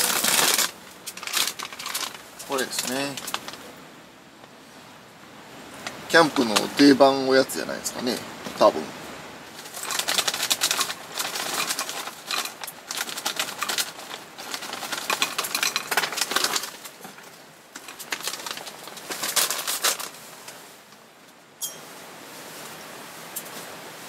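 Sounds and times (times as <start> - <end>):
crackers clattering into wooden bowl: 0.0 - 3.6, 9.6 - 17.2, 17.8 - 20.1
plastic snack bag rustling: 0.0 - 3.7, 9.6 - 20.2.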